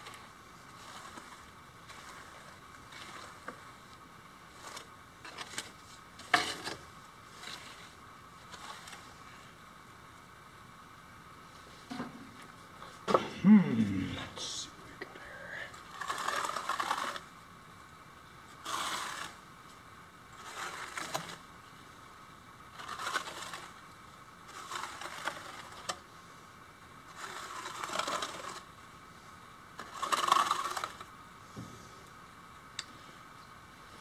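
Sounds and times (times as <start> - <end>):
trowel scraping mortar: 0.0 - 3.8, 4.4 - 9.5, 15.8 - 17.3, 18.6 - 19.4, 20.4 - 21.4, 22.7 - 23.8, 24.5 - 25.9, 27.1 - 28.7, 29.8 - 31.0.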